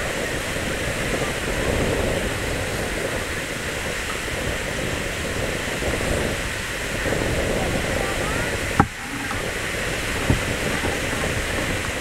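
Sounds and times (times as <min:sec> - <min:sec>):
surf washing: 0:00.0 - 0:12.0
crowd murmur: 0:06.9 - 0:12.0.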